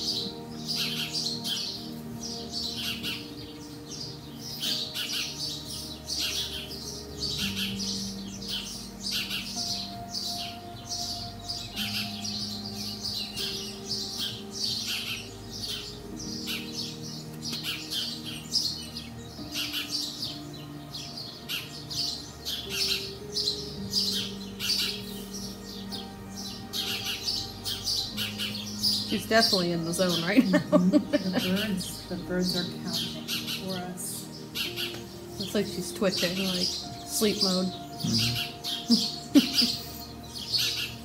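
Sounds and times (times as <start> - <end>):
small birds chirping: 0.0 - 41.0
soft background music: 0.0 - 41.0.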